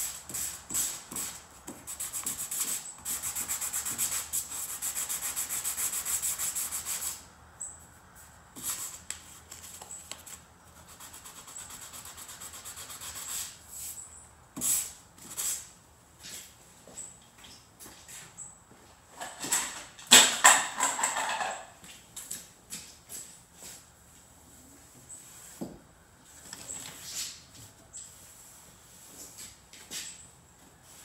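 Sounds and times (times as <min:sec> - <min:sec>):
sandpaper scuffing painted steel: 0:00.0 - 0:07.3, 0:08.2 - 0:16.6.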